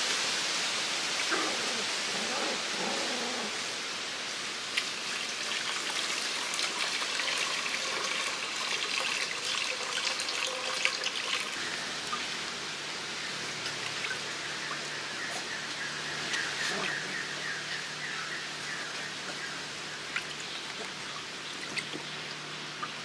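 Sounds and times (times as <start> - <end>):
water trickling into bowl: 4.8 - 12.4, 13.4 - 17.6, 20.0 - 23.0.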